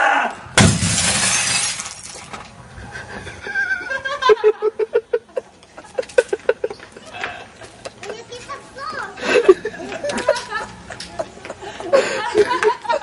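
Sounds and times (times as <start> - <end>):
glass and plastic shattering: 0.6 - 2.4
monitor crashing on concrete: 0.6 - 2.4.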